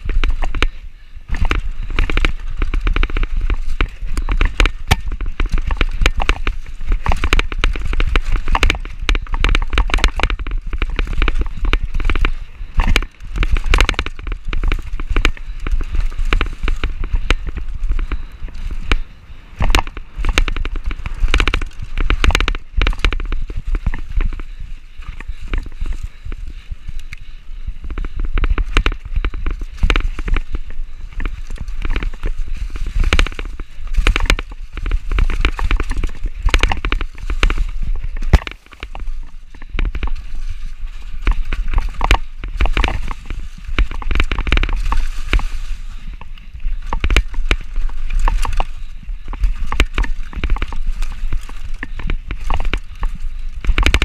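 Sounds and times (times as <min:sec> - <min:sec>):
bike rattling over rocks: 0:00.0 - 0:54.0
bike tyres on loose dirt: 0:00.0 - 0:54.0
wind buffeting microphone: 0:00.0 - 0:54.0.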